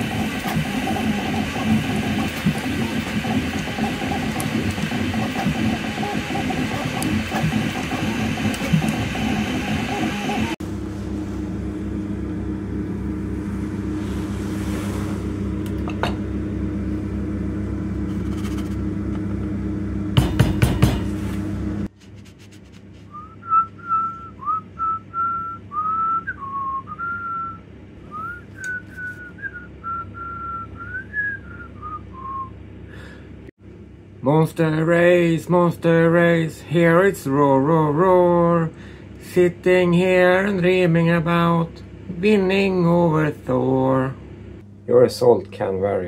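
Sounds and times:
steady low hum: 0:00.0 - 0:46.0
loud knocks: 0:20.2 - 0:21.2
person whistling a tune: 0:23.1 - 0:32.5.

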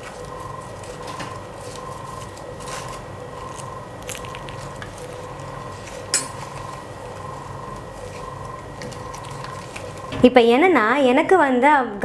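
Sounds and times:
banana leaf rustling and crinkling: 0:00.0 - 0:10.2
faint steady hum: 0:00.0 - 0:12.0.

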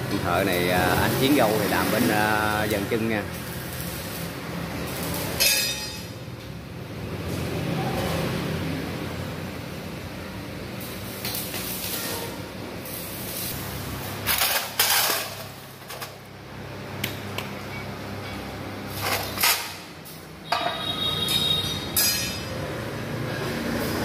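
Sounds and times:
steel parts clanking and scraping: 0:04.9 - 0:06.2, 0:11.2 - 0:13.6, 0:14.2 - 0:16.3, 0:17.7 - 0:22.6.

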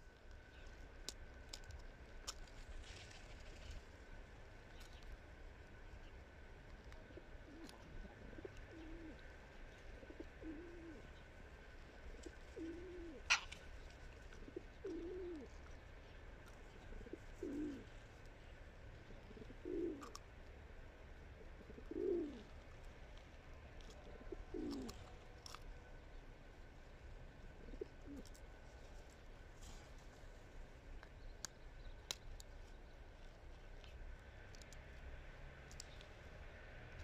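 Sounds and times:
pigeon cooing: 0:07.0 - 0:11.2, 0:12.0 - 0:13.6, 0:14.3 - 0:15.6, 0:16.7 - 0:18.0, 0:19.0 - 0:20.2, 0:21.4 - 0:22.5, 0:23.8 - 0:25.2, 0:27.4 - 0:28.5.

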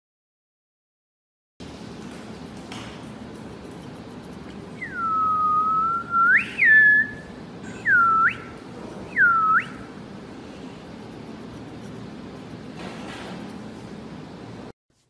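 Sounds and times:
person whistling: 0:04.8 - 0:08.5, 0:09.1 - 0:09.9.

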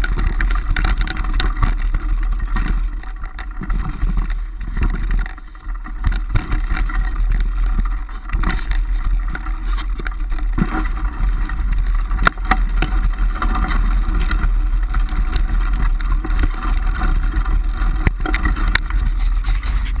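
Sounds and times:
bike rattling over bumps: 0:00.0 - 0:20.0
deep rumble: 0:00.0 - 0:20.0.

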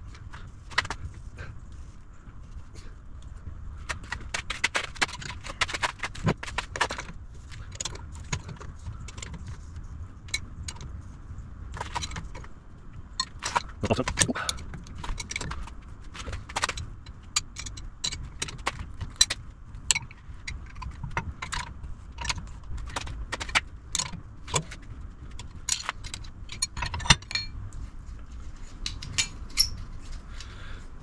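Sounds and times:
metallic clinks of tools: 0:28.9 - 0:29.8.

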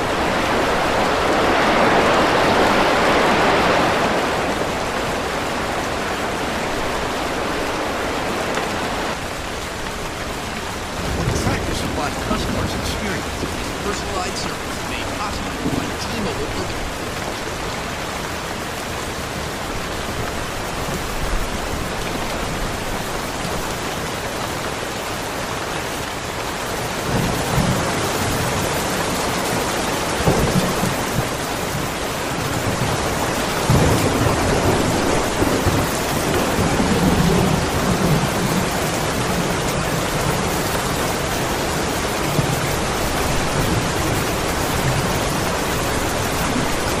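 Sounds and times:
steady rain falling: 0:00.0 - 0:47.0
thunder rumbling: 0:09.1 - 0:23.7, 0:27.0 - 0:47.0.

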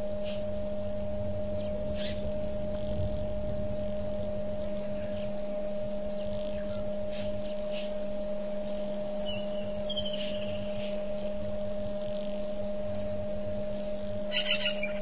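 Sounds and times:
electrical hum: 0:00.0 - 0:15.0
faint high bird chirps: 0:01.6 - 0:03.1, 0:03.9 - 0:11.7, 0:12.5 - 0:15.0.

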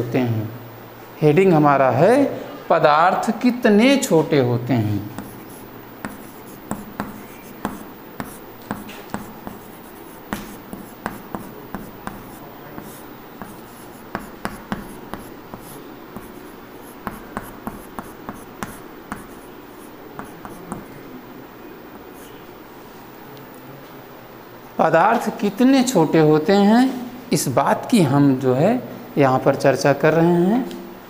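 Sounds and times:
chalk tapping and scratching: 0:05.1 - 0:21.0, 0:22.2 - 0:22.4.

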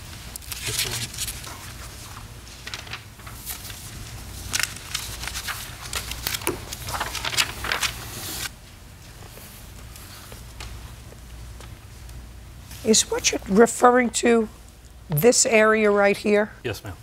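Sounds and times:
paper rustling: 0:00.1 - 0:08.5.

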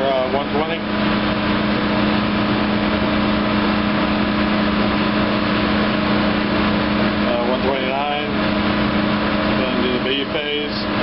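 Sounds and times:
blower and compressor drone: 0:00.0 - 0:11.0.

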